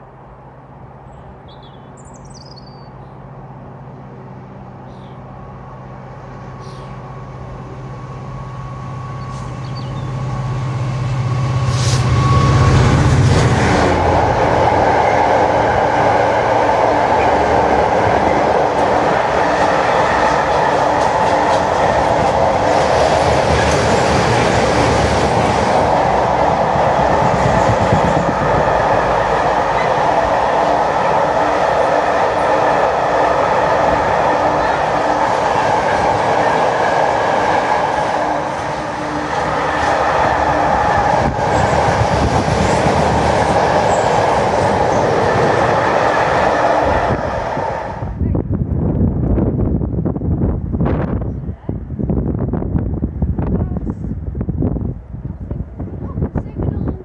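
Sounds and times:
locomotive hum: 2.9s - 57.0s
train wheels on rails: 5.6s - 49.7s.

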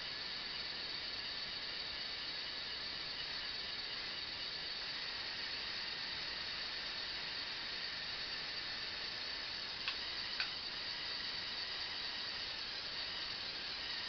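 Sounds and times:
hiss: 0.0s - 14.0s
small electric motors whining: 0.0s - 14.0s.

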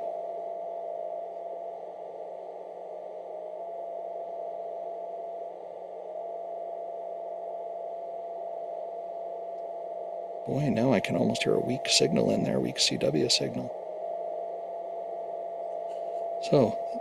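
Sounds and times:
constant whistling tone: 0.0s - 17.0s
radio band hiss: 10.5s - 13.7s, 16.4s - 17.0s.

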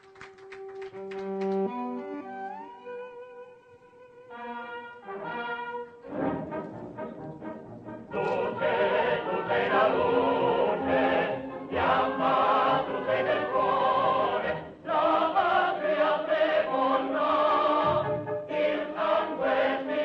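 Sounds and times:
operatic choral singing: 7.8s - 20.0s.

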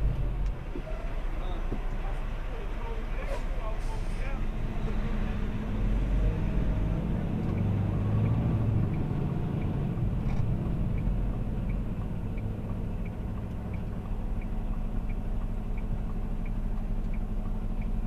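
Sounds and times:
diesel engine idling: 0.0s - 18.0s
turn signal ticking: 6.9s - 18.0s.

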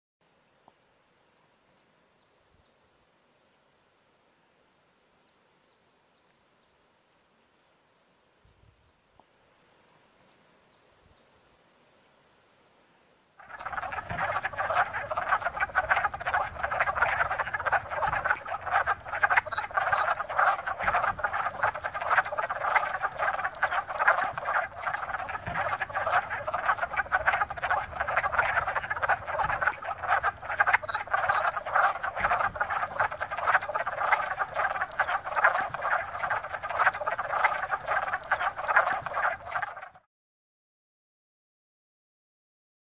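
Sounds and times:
frogs clucking chorus: 13.4s - 40.1s.

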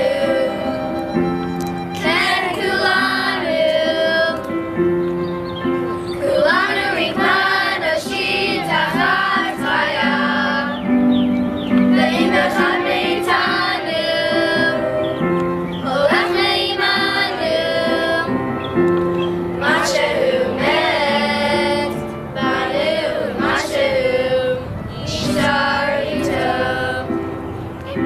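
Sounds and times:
group of young voices singing: 0.0s - 1.2s, 1.9s - 4.6s, 6.2s - 11.0s, 11.8s - 18.5s, 19.3s - 27.3s.

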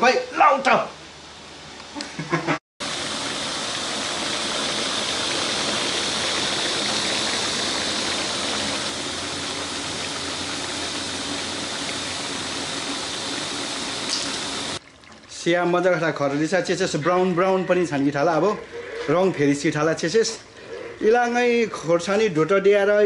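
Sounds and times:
meat sizzling in a pot: 2.8s - 15.8s.

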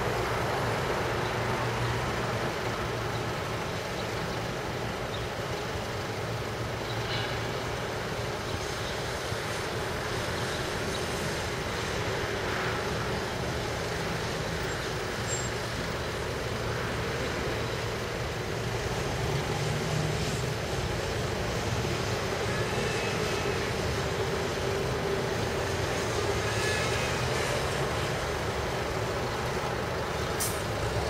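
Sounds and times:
road traffic: 0.0s - 31.0s
train rumbling across viaduct: 0.0s - 31.0s.

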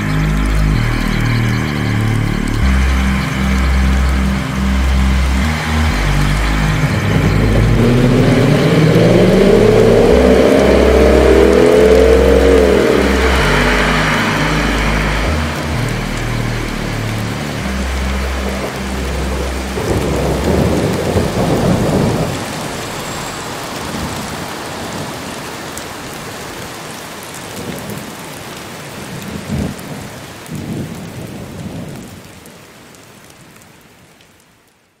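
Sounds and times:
thunder rumble: 0.0s - 26.5s
rain on wet asphalt: 0.0s - 35.0s.

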